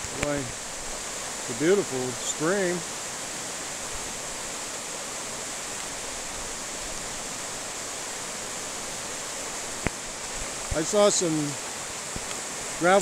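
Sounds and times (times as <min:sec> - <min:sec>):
river rushing over boulders: 0:00.0 - 0:13.0.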